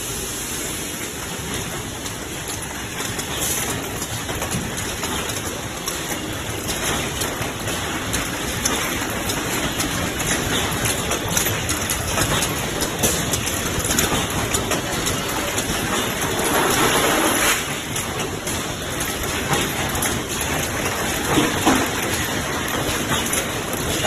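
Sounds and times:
machines clattering: 0.9 - 24.0.

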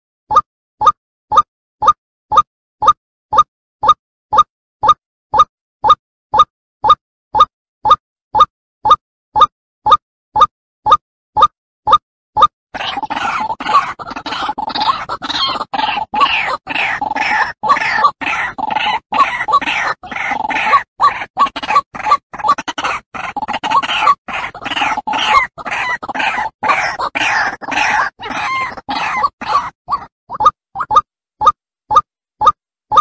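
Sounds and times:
waterhen calling rapidly: 12.8 - 31.0.

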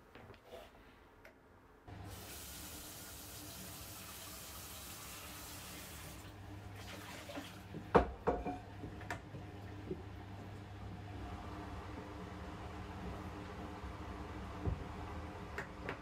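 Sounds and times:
tap water running into pan: 2.0 - 8.1
pan knocking in sink: 7.8 - 8.7.

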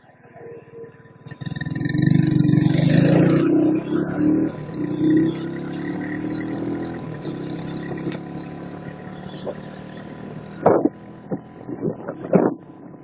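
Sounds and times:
motorcycle engine cruising: 0.0 - 13.0
wind buffeting microphone: 10.4 - 12.7.

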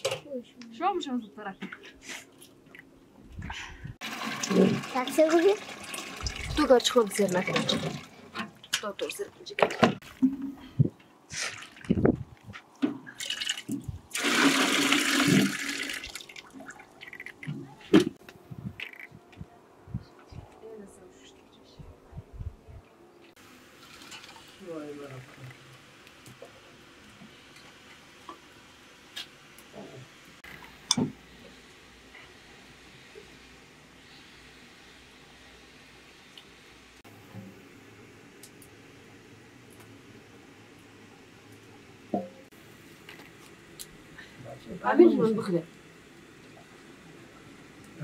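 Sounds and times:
water pouring into metal tin: 4.0 - 8.1, 13.2 - 17.4, 23.8 - 24.6.

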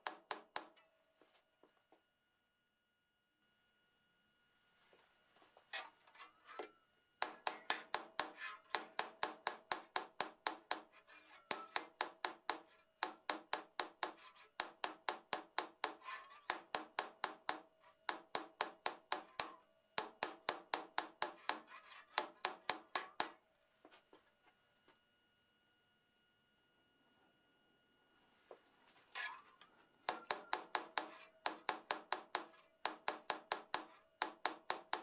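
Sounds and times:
hammer tapping saw blade: 0.0 - 0.8, 6.6 - 23.4, 30.1 - 35.0
steady metallic ring: 6.2 - 12.8.

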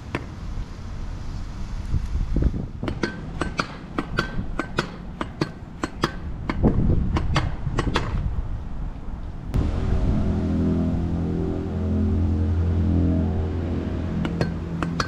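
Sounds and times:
wind rumble on microphone: 0.5 - 3.1, 6.1 - 15.0.

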